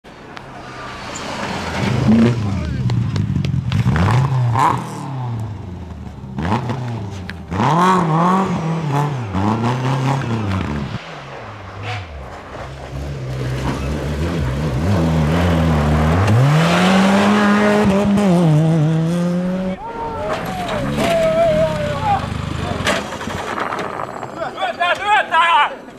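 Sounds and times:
rally car engine revving: 0.5s - 24.1s
rally car engine at high revs: 1.1s - 19.8s.

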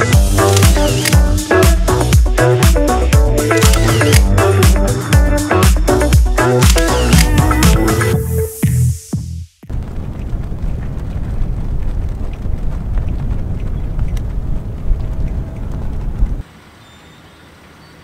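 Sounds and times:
wind buffeting microphone: 9.7s - 16.4s.

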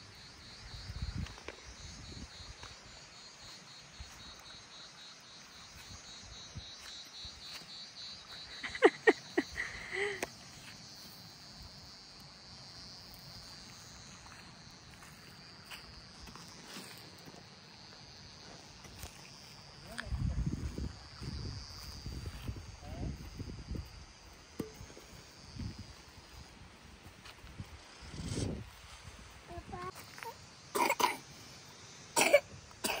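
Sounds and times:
crickets chirping: 0.0s - 33.0s.

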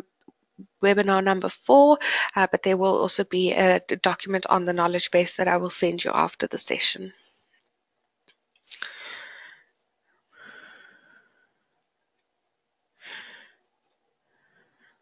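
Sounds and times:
person breathing: 2.0s - 2.3s, 8.7s - 11.7s, 13.0s - 13.6s, 14.2s - 15.0s.

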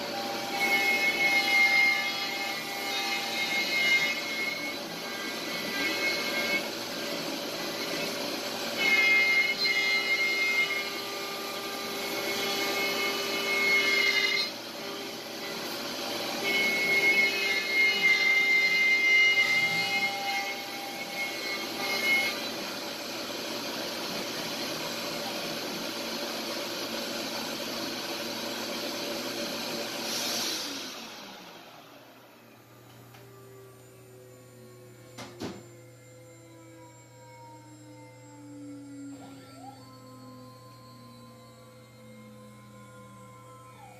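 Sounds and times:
router spindle cutting wood: 0.0s - 43.9s
vacuum hose rushing: 29.8s - 31.5s
high whine: 31.8s - 43.9s.

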